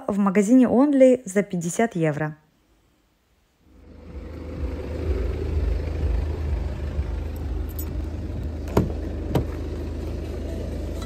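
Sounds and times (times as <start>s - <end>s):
car engine and road rumble: 3.6s - 11.0s.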